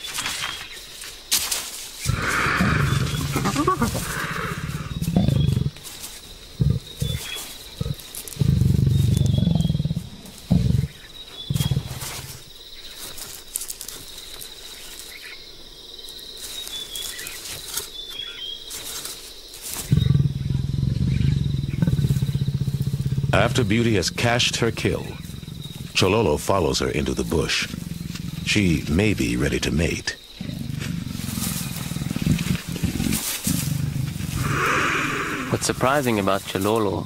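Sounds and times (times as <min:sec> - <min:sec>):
leopard growling: 0:02.0 - 0:12.6, 0:19.6 - 0:37.0.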